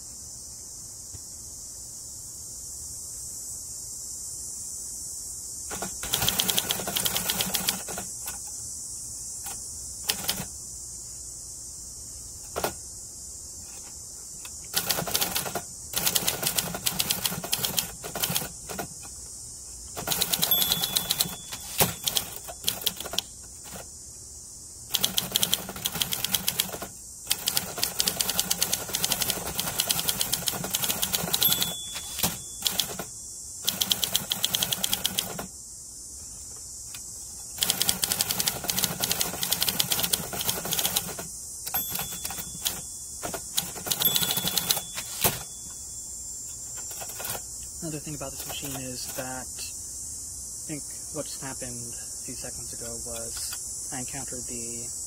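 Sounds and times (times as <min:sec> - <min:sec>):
steady high hiss: 0:00.0 - 0:55.0
manual typewriter key clacks: 0:05.7 - 0:08.1, 0:20.0 - 0:23.3, 0:25.0 - 0:33.0, 0:33.7 - 0:35.4, 0:37.6 - 0:45.5
typewriter bell ding: 0:20.1 - 0:22.5, 0:30.8 - 0:33.0, 0:41.7 - 0:42.9, 0:43.6 - 0:45.8.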